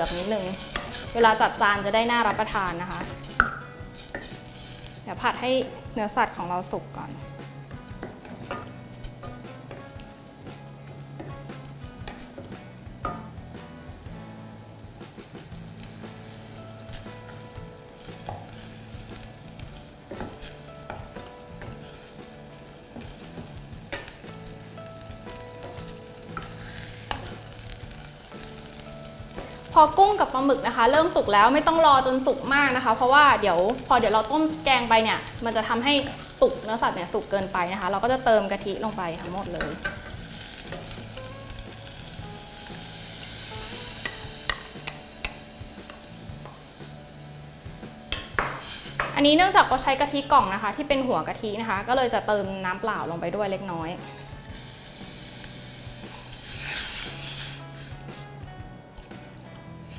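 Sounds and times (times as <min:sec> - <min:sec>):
seafood sizzling in a pot: 0:00.0 - 0:59.9
spatula scraping a pot: 0:04.0 - 0:05.0, 0:56.2 - 0:58.3.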